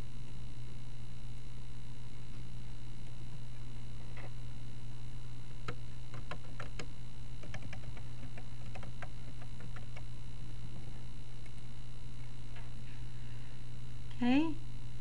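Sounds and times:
low electrical hum: 0.0s - 15.0s
keyboard keys clicking: 6.1s - 10.0s.

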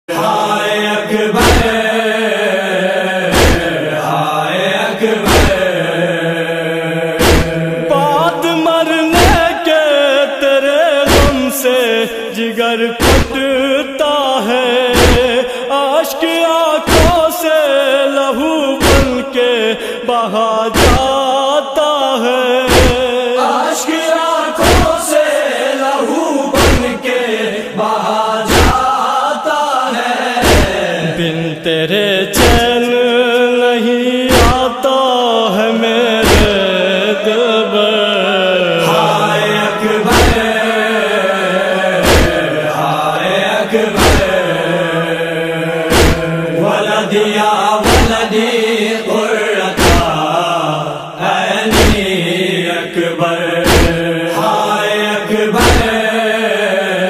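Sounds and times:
hummed vocal drone: 0.1s - 57.0s
man chanting a lament: 0.1s - 57.0s
deep rhythmic thump: 1.4s - 1.8s, 3.3s - 3.8s, 5.3s - 5.8s, 7.2s - 7.7s, 9.2s - 9.5s, 11.1s - 11.4s, 13.0s - 13.5s, 15.0s - 15.4s, 16.9s - 17.3s, 18.8s - 19.2s, 20.8s - 21.1s, 22.7s - 23.1s, 24.6s - 25.0s, 26.6s - 27.0s, 28.5s - 28.8s, 30.4s - 30.9s, 32.4s - 32.7s, 34.3s - 34.7s, 36.2s - 36.6s, 40.1s - 40.6s, 42.0s - 42.4s, 44.0s - 44.4s, 45.9s - 46.4s, 47.8s - 48.2s, 49.8s - 50.2s, 51.7s - 52.1s, 53.6s - 54.0s, 55.6s - 56.0s
wordless wavering voice: 2.7s - 19.4s
deep heavy beat: 3.4s - 3.7s, 5.3s - 5.7s, 7.2s - 7.6s, 13.0s - 13.4s, 18.8s - 19.2s, 20.8s - 21.1s, 22.7s - 23.0s, 26.6s - 26.9s, 28.5s - 28.8s, 36.2s - 36.6s, 42.0s - 42.4s, 44.0s - 44.3s, 45.9s - 46.3s, 51.8s - 52.1s, 53.7s - 54.0s.

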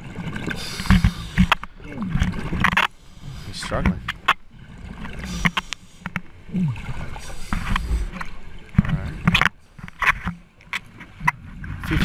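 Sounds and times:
diver breathing underwater: 0.4s - 1.8s, 5.1s - 8.4s
regulator bubbling exhalations: 0.4s - 2.5s, 5.1s - 8.4s.

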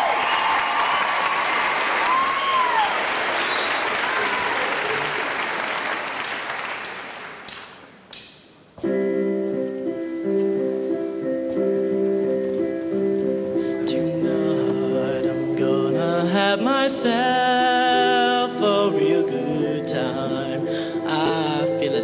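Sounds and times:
audience applauding: 0.0s - 7.9s
whistles from audience: 2.0s - 4.4s
sustained instrumental chords: 8.8s - 22.0s.

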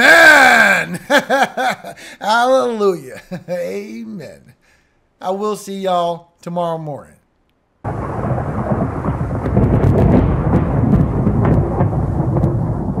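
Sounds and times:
rain: 7.8s - 13.0s
sharp crackles: 7.8s - 13.0s
thunder rumbling: 7.8s - 13.0s.

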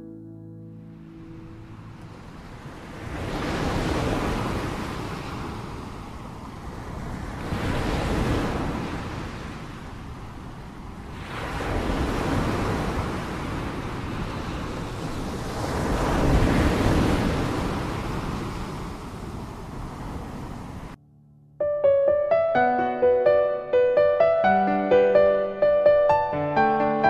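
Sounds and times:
ocean surf breaking: 0.9s - 21.0s.

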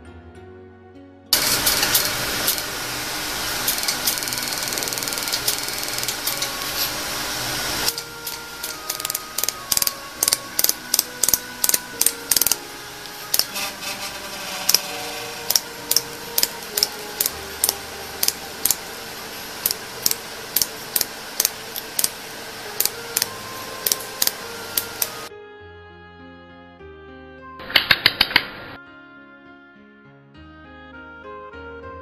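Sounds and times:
laser welder snapping clicks: 1.4s - 13.6s, 15.5s - 18.9s, 19.6s - 25.2s.

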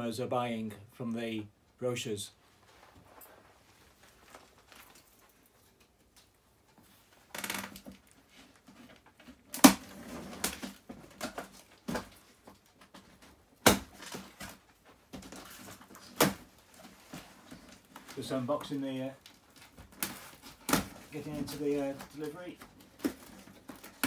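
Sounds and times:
cardboard rustling and scraping: 6.8s - 24.0s.

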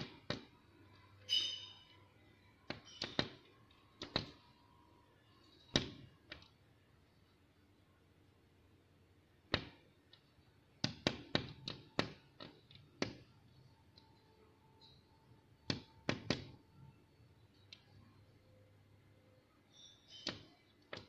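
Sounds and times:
bird beak tapping window glass: 0.0s - 0.6s, 2.6s - 4.5s, 10.8s - 13.3s, 15.7s - 16.6s, 20.1s - 21.0s.

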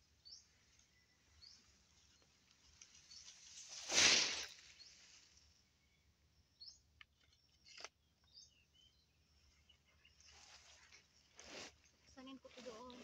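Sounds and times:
faint bird chirps: 0.0s - 13.0s
cut grass rustling swish: 3.1s - 4.8s, 11.4s - 11.8s
small clicks: 7.0s - 8.0s.

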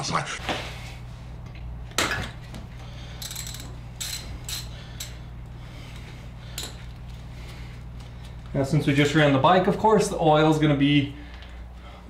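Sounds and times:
ratchet clicks: 3.2s - 5.2s.

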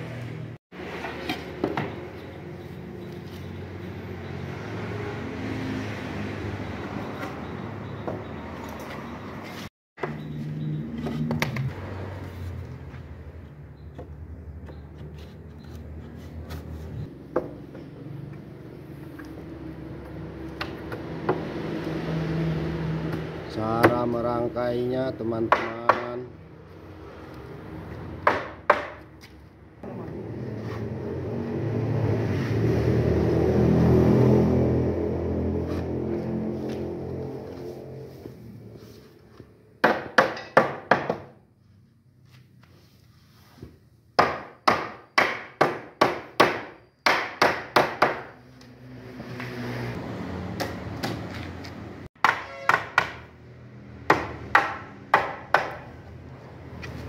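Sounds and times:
hammer blows on wooden frame: 25.4s - 26.3s, 52.2s - 53.3s
hammer striking wooden frame: 25.5s - 26.2s, 28.2s - 29.1s, 39.8s - 41.4s, 44.2s - 48.4s, 52.2s - 53.3s, 54.0s - 56.0s.

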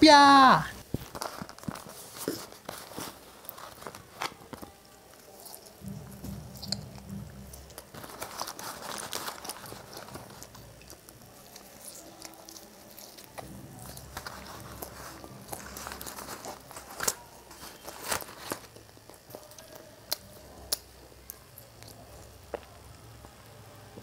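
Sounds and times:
paperboard carton crinkling: 0.8s - 5.9s, 7.7s - 19.5s
person chewing: 1.2s - 23.4s.

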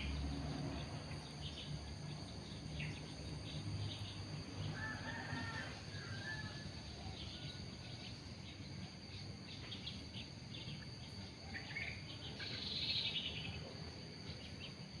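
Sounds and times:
high-pitched insect chorus: 0.0s - 15.0s
bird chirps: 7.0s - 14.8s.

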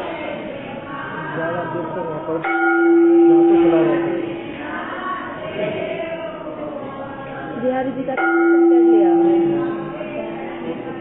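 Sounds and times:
murmur of voices: 0.0s - 11.0s
temple bell ringing: 2.4s - 4.5s, 8.2s - 11.0s.

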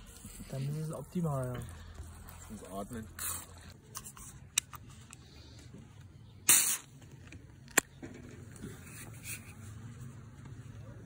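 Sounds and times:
hiss of escaping gas: 6.5s - 6.9s.

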